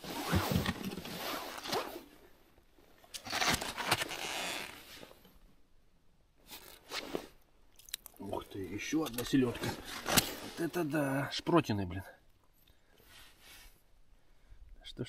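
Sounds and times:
rustling clothing and gear: 0.0 - 2.2, 2.8 - 5.3, 6.4 - 7.4, 8.3 - 11.2.

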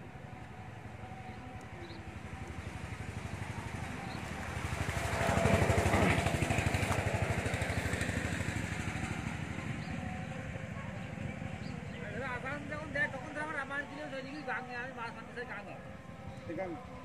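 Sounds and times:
small engine passing by: 0.9 - 13.0.

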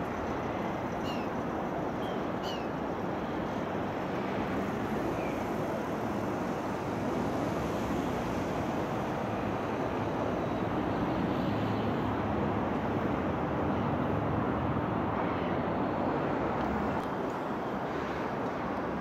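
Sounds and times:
distant traffic rush: 0.0 - 19.0.

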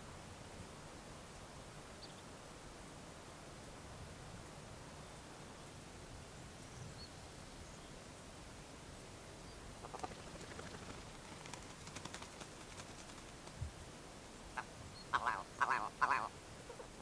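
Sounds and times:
nasal quack-like animal calls: 14.6 - 16.4.

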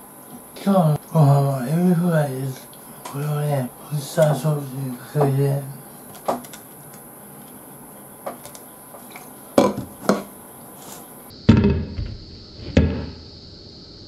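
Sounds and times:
tableware knocking and clinking: 8.3 - 10.4.

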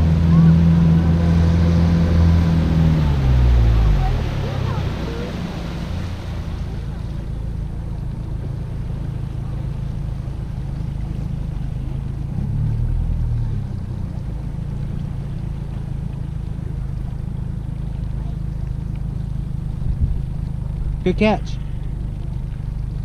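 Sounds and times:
outboard motor running: 0.0 - 23.0.

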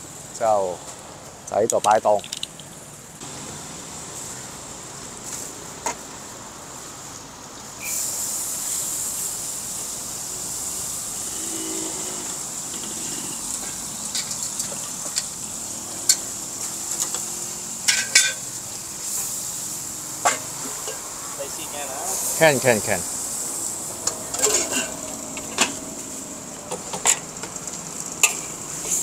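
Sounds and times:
high insect drone: 1.6 - 29.0
food sizzling in a wok: 3.2 - 29.0.

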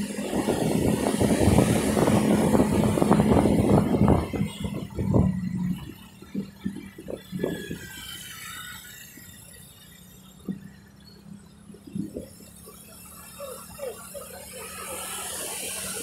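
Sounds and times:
wind buffeting microphone: 0.0 - 8.0
low engine hum: 0.0 - 16.0.

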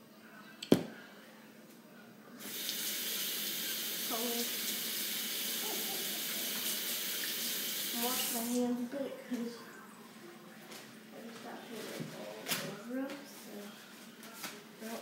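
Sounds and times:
tap water running into sink: 2.4 - 8.6.

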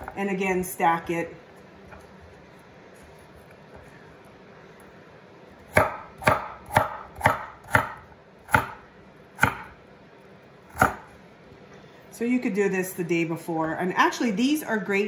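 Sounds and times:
knife chopping on wooden board: 5.7 - 9.8, 10.7 - 11.1.

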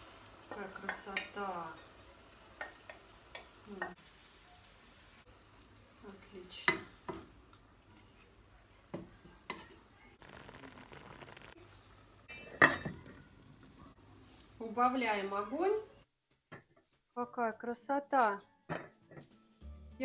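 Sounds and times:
sizzling hiss: 0.0 - 8.4, 10.2 - 12.3.

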